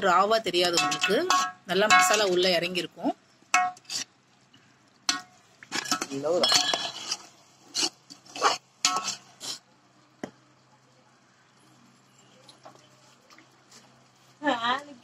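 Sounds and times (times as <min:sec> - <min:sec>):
metal spoon scraping pot: 0:00.7 - 0:02.5, 0:03.6 - 0:04.2, 0:05.1 - 0:09.6.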